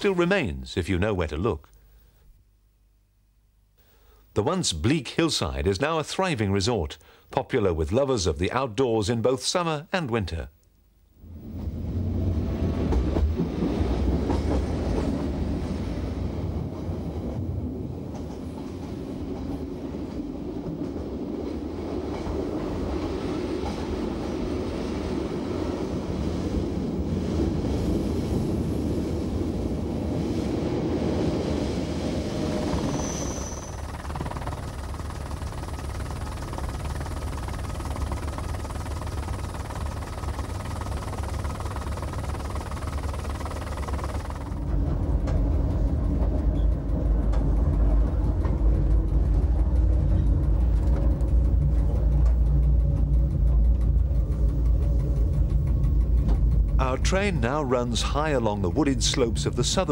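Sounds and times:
train wheels on rail: 0:11.5 - 0:56.8
high wheel squeal: 0:32.6 - 0:34.0.

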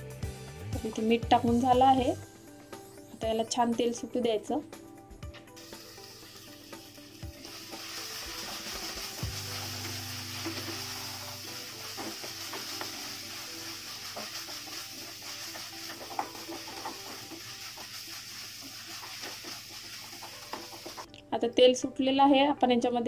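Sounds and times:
masala sizzling in hot oil: 0:05.5 - 0:21.1.

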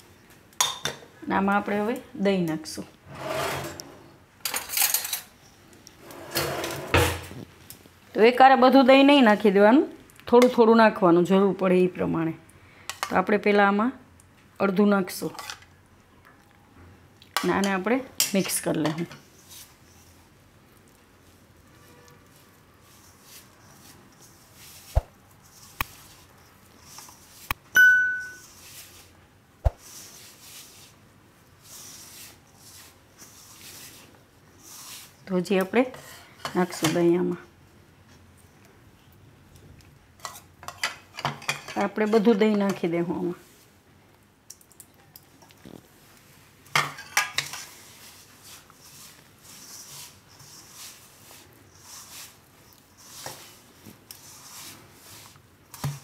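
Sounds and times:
hands rubbing flour in a bowl: 0:19.3 - 0:27.6, 0:28.4 - 0:36.2, 0:47.4 - 0:56.0.

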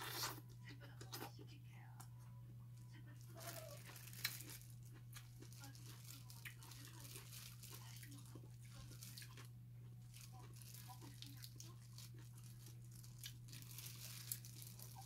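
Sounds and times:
soft eating noises: 0:00.0 - 0:15.0
plastic gloves crinkling: 0:03.2 - 0:15.0.

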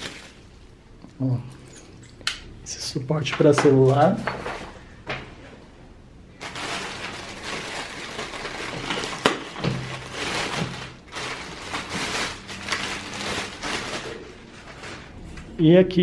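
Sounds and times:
plastic bag crinkling: 0:00.0 - 0:00.6, 0:06.4 - 0:15.2.

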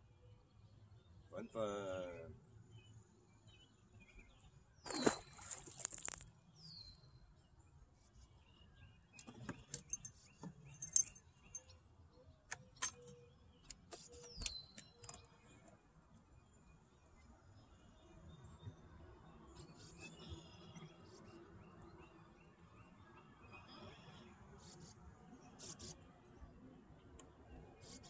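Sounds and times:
fish splashing into water: 0:04.9 - 0:06.3
fishing gear clicking and rattling: 0:09.2 - 0:11.7, 0:12.6 - 0:13.2.

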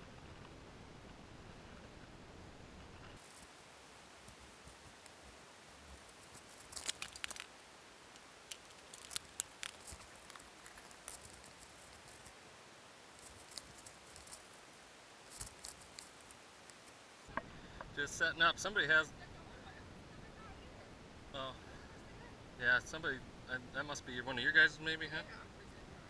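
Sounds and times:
plastic bag crinkling: 0:03.2 - 0:17.0.

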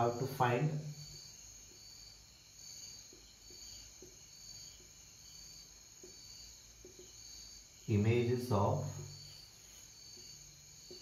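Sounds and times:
marker ticking on whiteboard: 0:03.0 - 0:07.4, 0:10.1 - 0:11.0.

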